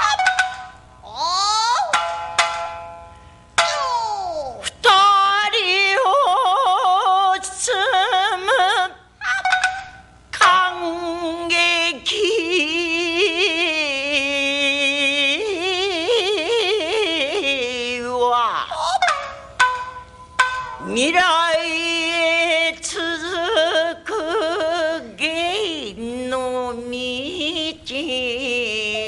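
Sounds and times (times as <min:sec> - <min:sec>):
shamisen: 0:00.0 - 0:04.7, 0:09.2 - 0:11.5, 0:14.8 - 0:24.8
woman singing with vibrato: 0:03.8 - 0:19.2, 0:20.8 - 0:29.0.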